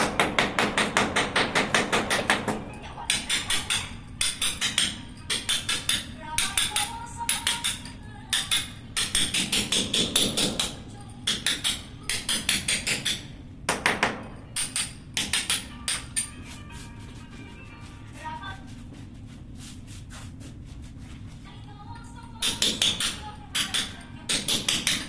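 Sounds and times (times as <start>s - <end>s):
hammer striking chisel on concrete: 0.0s - 16.4s, 22.4s - 25.0s.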